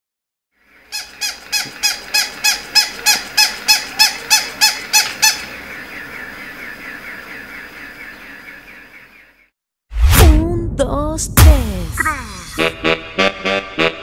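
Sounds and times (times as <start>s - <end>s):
toy dog squeaky yips: 1.0s - 5.4s.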